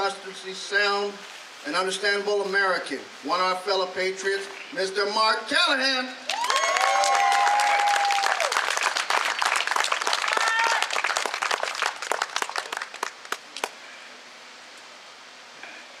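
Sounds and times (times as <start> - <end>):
voices whooping: 6.3 - 8.6, 10.2 - 11.0
crowd applauding: 6.3 - 13.8.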